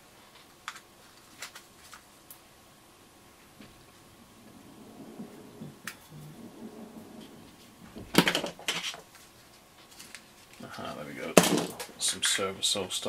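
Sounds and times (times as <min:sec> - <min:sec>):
soft rustling: 0:03.3 - 0:12.5.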